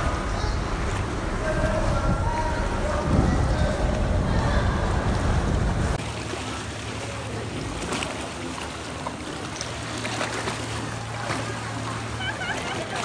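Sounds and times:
low rumble: 0.0s - 8.3s
sea water sloshing around boat: 0.0s - 13.0s
steady low hum: 0.0s - 13.0s.

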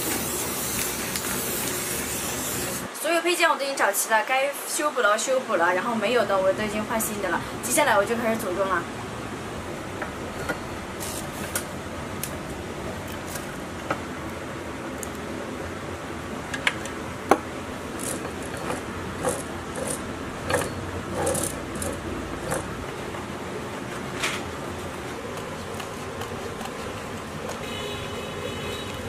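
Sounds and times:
steady background hiss: 0.0s - 21.1s
metal parts clicking: 18.0s - 22.7s.

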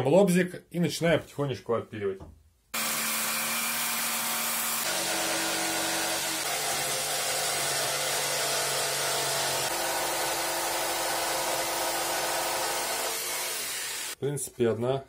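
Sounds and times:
jigsaw cutting plastic sheet: 2.8s - 14.2s.

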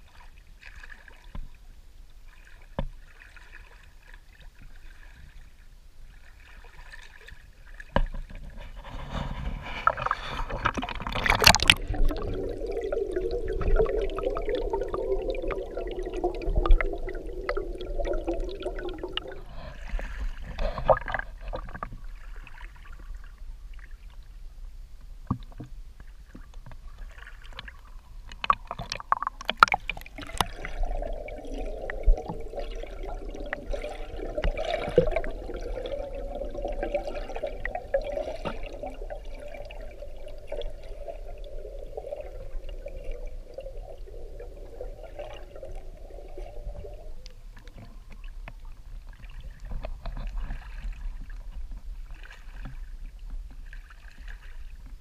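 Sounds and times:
muffled underwater rush and gurgle: 0.0s - 55.0s
river water splashing and knocking: 7.9s - 15.6s, 28.3s - 35.8s.

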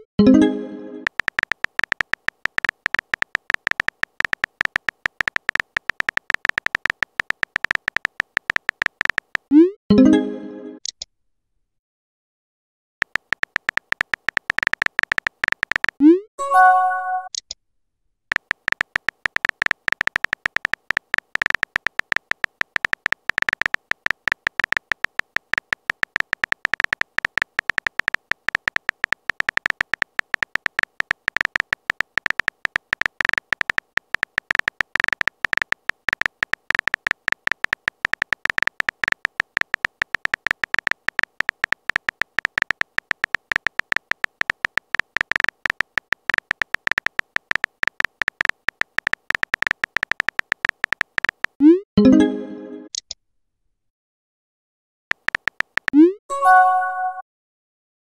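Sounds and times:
phone keyboard tapping clicks: 1.0s - 9.5s, 13.0s - 16.1s, 18.3s - 51.6s, 55.1s - 56.1s.

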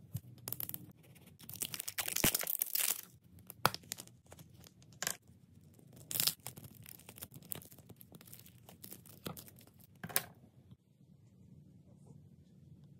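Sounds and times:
slime crackling and tearing: 1.4s - 4.2s, 5.8s - 10.0s.

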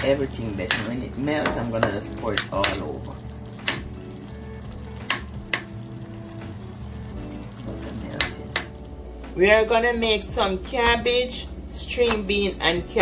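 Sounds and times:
sauce sizzling in a pot: 0.0s - 9.8s.

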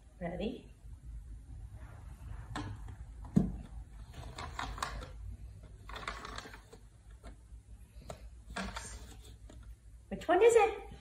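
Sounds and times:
plastic cups scraping and rattling: 2.4s - 9.8s.

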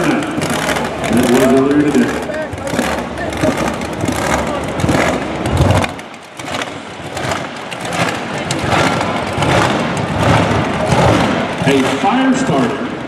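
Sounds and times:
car engine revving: 0.0s - 13.0s
exhaust pops: 0.0s - 13.0s.

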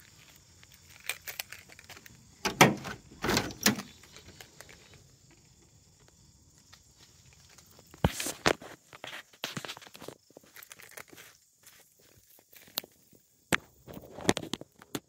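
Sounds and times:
car door clacking open: 2.4s - 3.9s
car door latch clicks: 2.4s - 3.9s.

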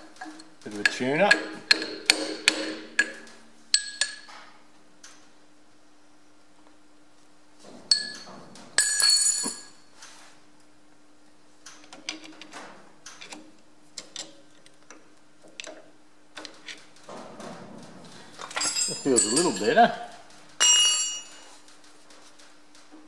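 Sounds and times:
steel tool tapping and scraping: 0.2s - 4.4s
ringing metal clang: 7.9s - 9.8s, 18.6s - 21.6s
metal tool ping: 20.6s - 21.5s.

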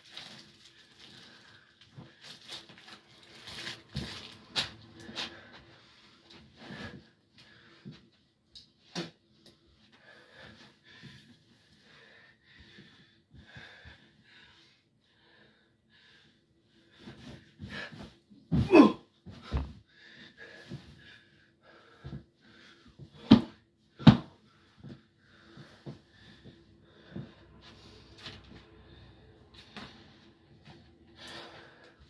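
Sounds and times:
mattress rustling and creaking: 1.5s - 7.1s, 24.4s - 31.9s
body thumping onto bed: 18.0s - 19.8s.

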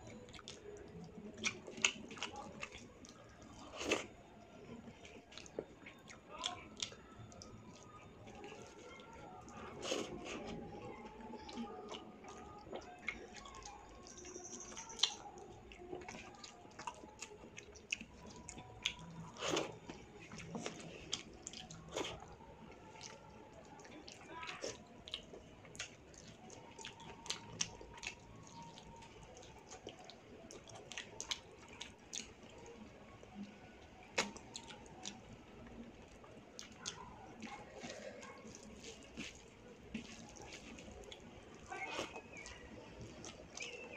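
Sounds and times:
chewing with lip smacks: 0.1s - 43.9s
fingers squishing food: 0.2s - 43.9s.

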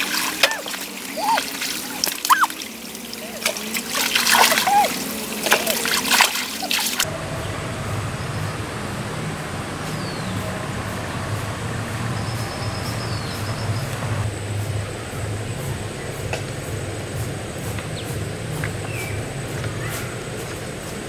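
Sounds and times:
outdoor hiss: 0.0s - 21.0s
faint high chirping: 0.5s - 2.6s
short falling whistle: 2.2s - 2.6s
steady low rumble: 7.0s - 21.0s.

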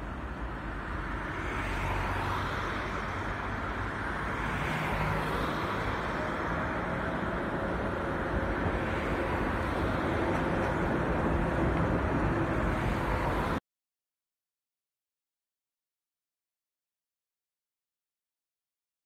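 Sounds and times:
electric tram rolling past: 0.0s - 13.6s
street traffic noise: 0.0s - 13.6s
car passing close by: 1.0s - 7.3s.

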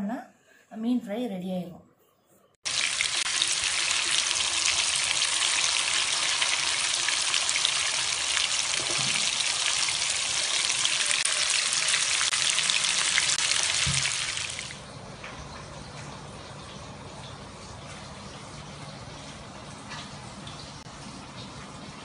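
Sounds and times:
fish sizzling in hot oil: 2.6s - 14.8s.

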